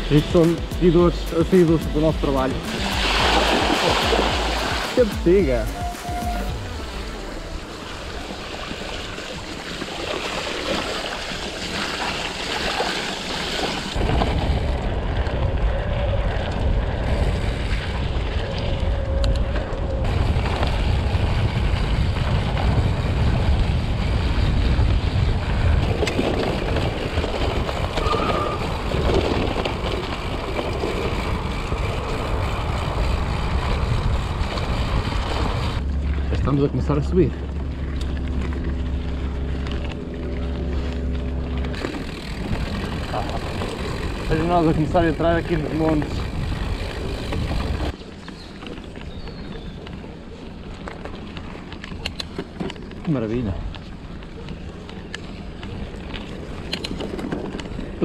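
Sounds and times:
bike tyres on dirt trail: 0:00.0 - 0:58.0
wind buffeting microphone: 0:14.0 - 0:51.8.

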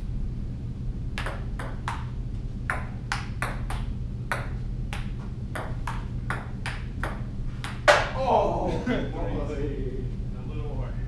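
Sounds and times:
low room hum: 0:00.0 - 0:11.0
ping pong ball clicking: 0:01.2 - 0:02.1, 0:02.7 - 0:08.0.

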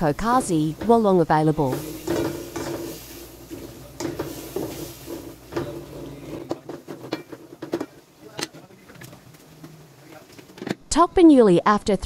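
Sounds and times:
wooden spatula scraping wok: 0:00.0 - 0:08.1.

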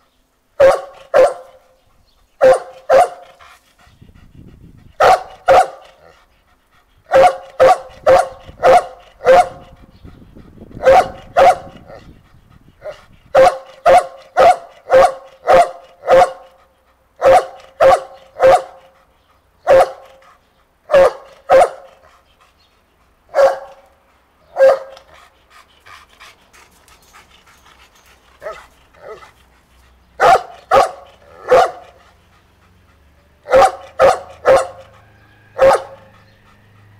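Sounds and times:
dog barking: 0:00.6 - 0:01.6, 0:02.4 - 0:03.4, 0:05.0 - 0:05.8, 0:07.1 - 0:09.7, 0:10.8 - 0:11.9, 0:13.4 - 0:16.5, 0:17.2 - 0:18.8, 0:19.7 - 0:20.2, 0:20.9 - 0:22.0, 0:23.3 - 0:23.8, 0:24.5 - 0:25.0, 0:30.2 - 0:32.0, 0:33.4 - 0:36.3.

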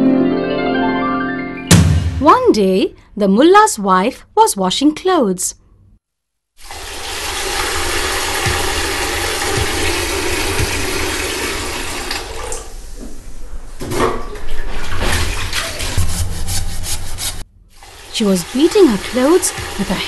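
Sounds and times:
water splashing: 0:06.6 - 0:12.6, 0:14.3 - 0:20.0
running water: 0:06.6 - 0:12.9, 0:14.4 - 0:20.0
wet clothes rubbed with stick: 0:15.1 - 0:17.5.

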